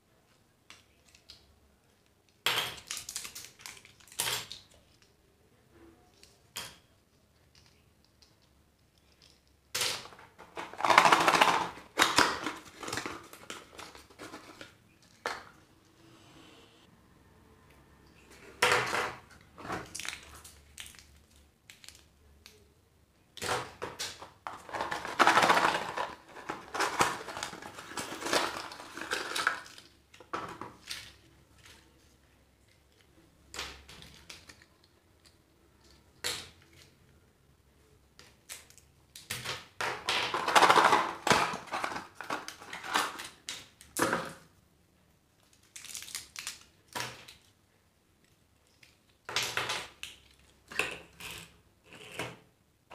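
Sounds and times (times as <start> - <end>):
wrapper crinkling: 10.1 - 15.2, 24.1 - 30.0, 45.4 - 47.5.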